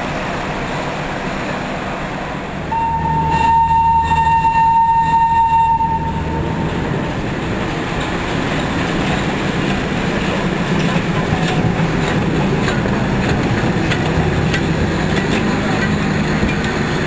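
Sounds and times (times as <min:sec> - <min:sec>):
diesel engine low drone: 0:00.0 - 0:17.0
train wheels clicking over rail joints: 0:06.7 - 0:17.0.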